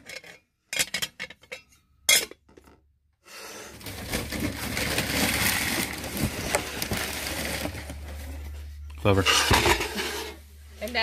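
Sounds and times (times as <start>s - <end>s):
low hum: 3.9s - 11.0s.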